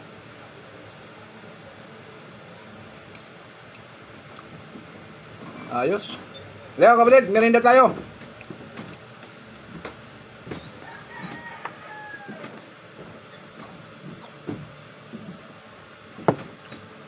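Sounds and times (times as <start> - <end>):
crunchy chewing: 3.0 - 4.9.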